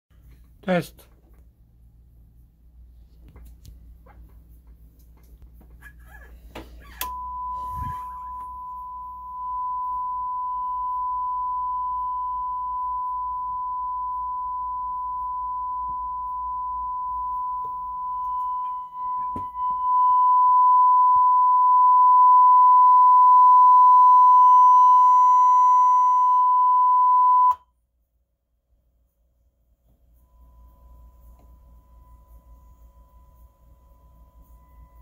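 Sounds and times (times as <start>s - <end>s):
sine test tone: 6.8s - 27.7s, 30.1s - 35.0s.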